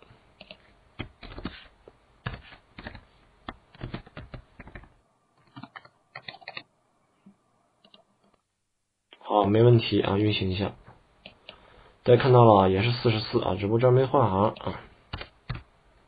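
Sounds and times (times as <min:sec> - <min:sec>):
keyboard typing: 0:00.4 - 0:06.7, 0:07.8 - 0:08.4, 0:14.6 - 0:15.7.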